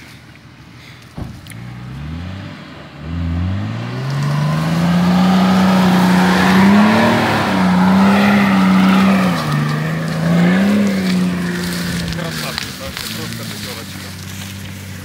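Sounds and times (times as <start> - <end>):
suv engine revving: 1.3 - 15.0
wheels churning mud: 3.3 - 15.0.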